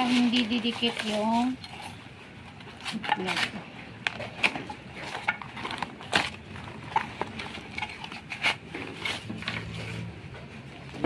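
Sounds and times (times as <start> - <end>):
cardboard and bubble wrap rustling: 0.0 - 11.0.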